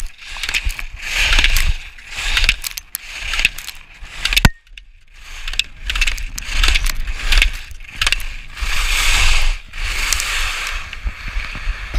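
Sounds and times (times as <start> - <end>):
ski edges scraping on snow: 0.0 - 11.9
wind rumbling on microphone: 0.0 - 11.9.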